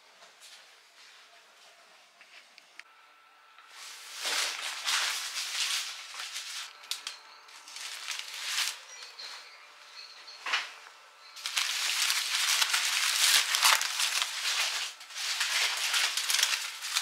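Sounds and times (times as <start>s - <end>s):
rustling noise: 3.7s - 6.8s, 7.6s - 9.4s, 11.4s - 17.0s.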